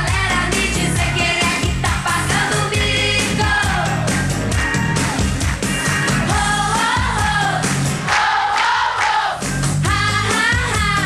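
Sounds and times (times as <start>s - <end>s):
woman singing pop song: 0.0s - 4.0s, 6.3s - 7.7s, 9.8s - 11.0s
steady drum beat: 0.0s - 8.3s.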